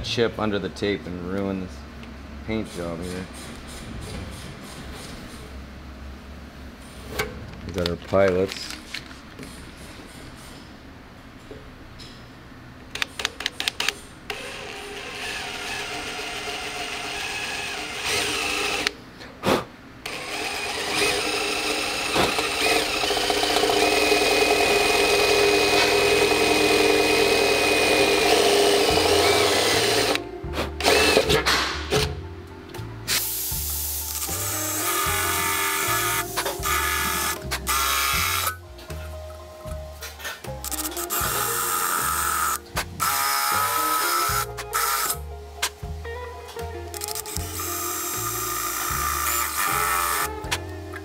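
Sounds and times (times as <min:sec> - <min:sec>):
cordless drill boring into steel: 0:14.3 - 0:18.9, 0:20.1 - 0:30.2, 0:30.8 - 0:31.3, 0:34.2 - 0:38.6, 0:40.6 - 0:45.2, 0:47.1 - 0:50.3.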